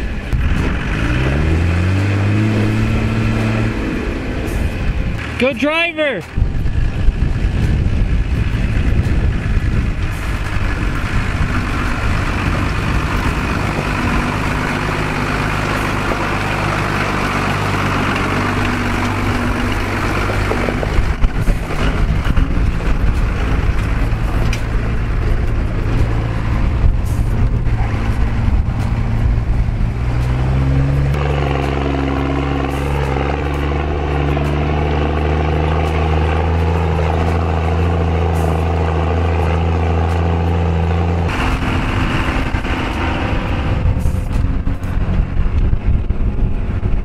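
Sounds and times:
truck engine running under load: 0:00.0 - 0:47.0.

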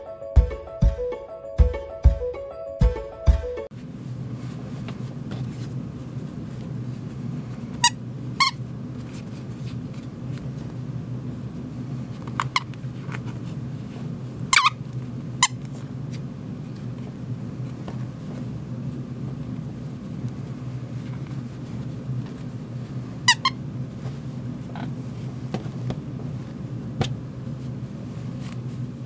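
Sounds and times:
steady low hum: 0:03.7 - 0:29.0
toy squeaker squeaking: 0:14.6 - 0:14.8, 0:23.3 - 0:23.6.

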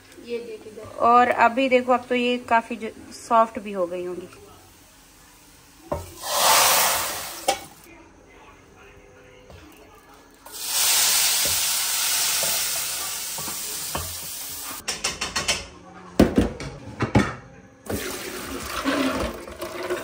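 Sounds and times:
hot oil sizzling: 0:00.0 - 0:07.9, 0:10.4 - 0:14.8
water pouring into colander: 0:17.9 - 0:20.0.

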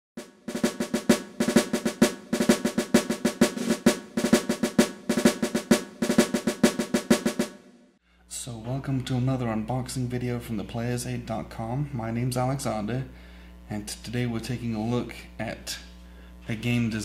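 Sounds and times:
percussion-driven intro music: 0:00.2 - 0:07.7.

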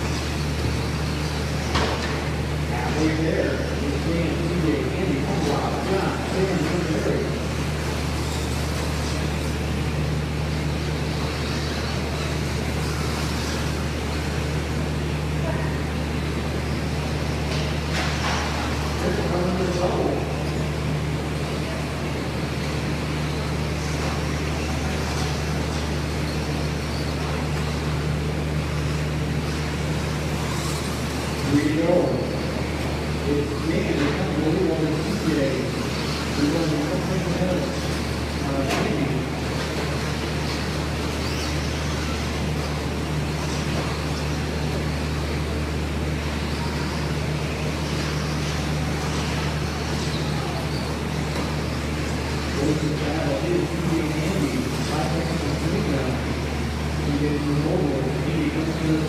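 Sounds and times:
low hum and hiss: 0:00.0 - 0:59.0
toy car motors whining: 0:39.5 - 0:44.8.

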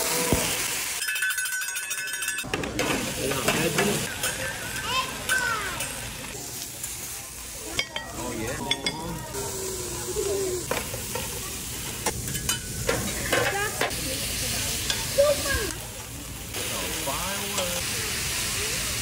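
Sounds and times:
meat sizzling on a griddle: 0:00.0 - 0:01.6, 0:02.8 - 0:19.0
metal spatula striking hot plate: 0:01.0 - 0:04.5, 0:12.0 - 0:13.7.

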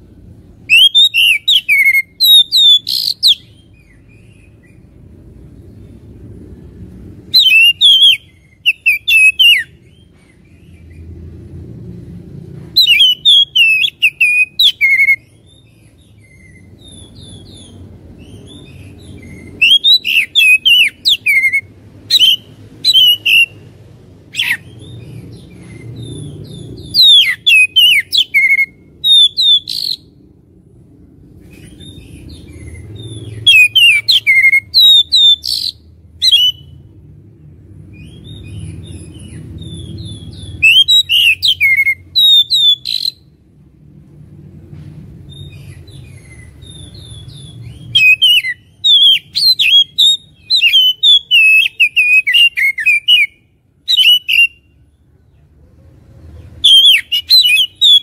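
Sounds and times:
faint low background rumble: 0:00.0 - 0:58.0
bird singing whistled notes: 0:00.6 - 0:04.8, 0:07.2 - 0:10.9, 0:12.8 - 0:23.7, 0:24.3 - 0:30.2, 0:31.6 - 0:36.9, 0:37.9 - 0:43.3, 0:45.3 - 0:54.9, 0:56.6 - 0:58.0.

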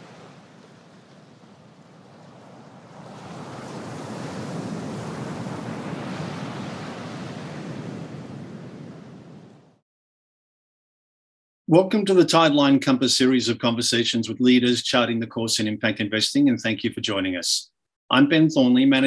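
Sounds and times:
ocean waves surging: 0:00.0 - 0:09.8.

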